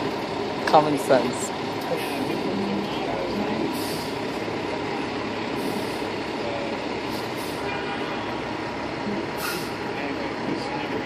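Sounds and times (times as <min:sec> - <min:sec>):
fire engine diesel engine running: 0:00.0 - 0:11.0.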